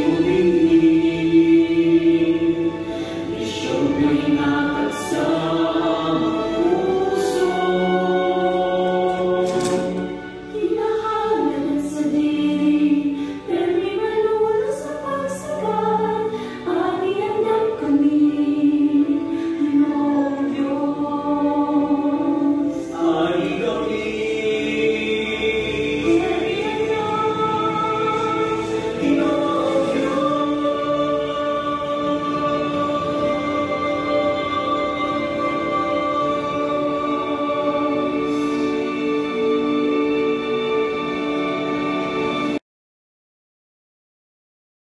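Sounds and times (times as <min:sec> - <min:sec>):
choir singing in harmony: 0:00.0 - 0:42.6.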